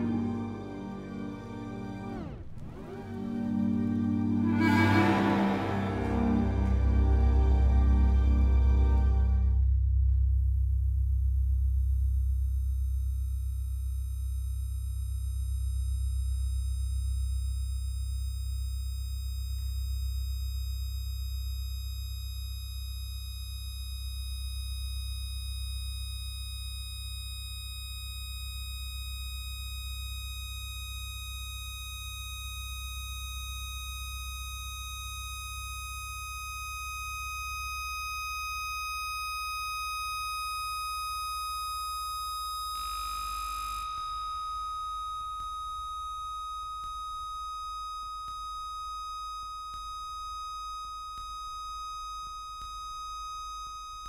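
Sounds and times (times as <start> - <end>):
deep sustained drone: 0.0 - 12.5
high pure sustained tone: 2.9 - 9.8, 23.2 - 54.0.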